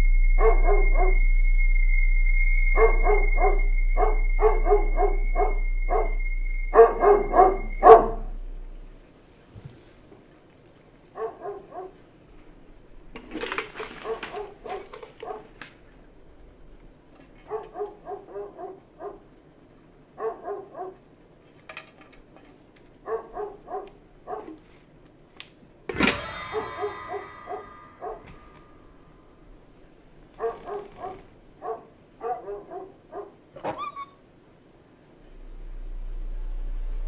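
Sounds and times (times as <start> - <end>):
loud burst of noise: 0.0 - 9.1, 25.9 - 30.2
dog barking: 0.4 - 1.2, 2.8 - 6.1, 6.7 - 8.3, 11.1 - 12.0, 14.0 - 15.6, 17.4 - 19.3, 20.2 - 21.0, 23.0 - 24.6, 26.5 - 28.5, 30.4 - 33.4.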